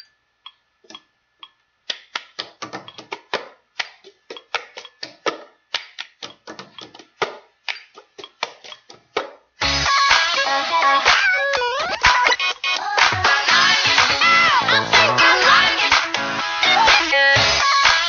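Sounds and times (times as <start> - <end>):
sharp irregular clicks and taps: 0.4 - 9.3.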